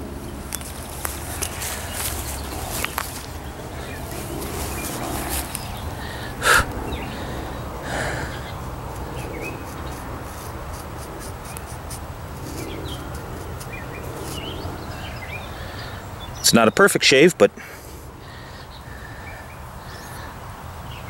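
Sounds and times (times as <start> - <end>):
knife shaving arm hair: 7.9 - 15.1.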